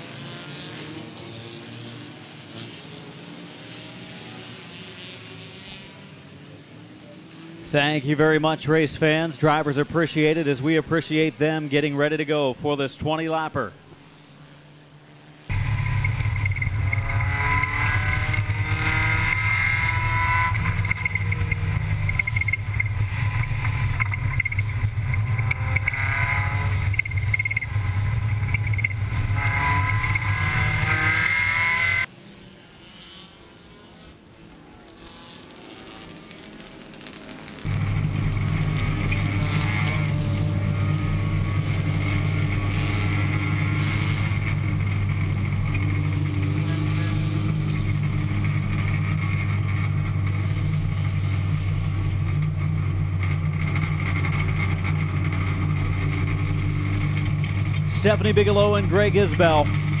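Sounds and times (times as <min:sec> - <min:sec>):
race car engine revving: 0:00.0 - 0:06.8, 0:14.1 - 1:00.0
car engine deep hum: 0:14.8 - 0:32.1, 0:37.6 - 1:00.0.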